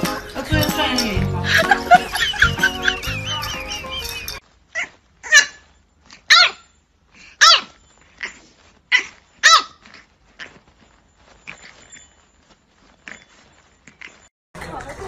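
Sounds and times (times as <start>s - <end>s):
puppy yapping barks: 4.8s - 5.6s, 6.3s - 6.7s, 7.4s - 9.8s.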